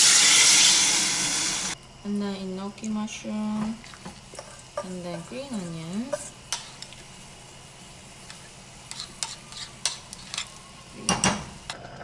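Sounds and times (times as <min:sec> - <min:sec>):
meat sizzling on griddle: 0:00.0 - 0:01.8.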